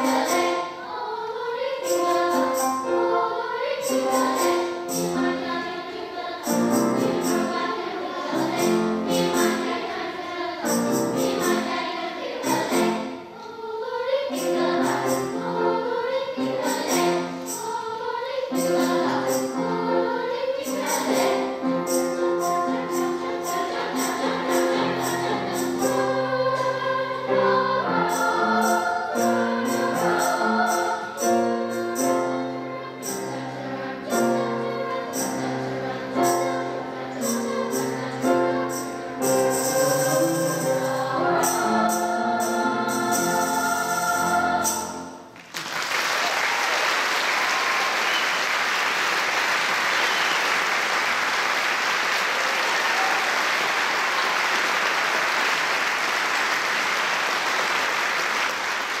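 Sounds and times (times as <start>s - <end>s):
children's choir singing: 0.0s - 59.0s
audience applause: 45.4s - 59.0s.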